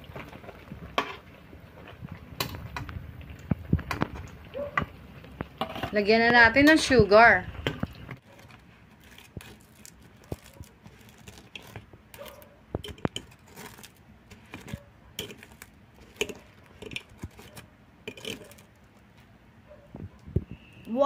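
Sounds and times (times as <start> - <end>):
tongs clicking on glass dish: 12.3 - 13.4, 15.2 - 17.4.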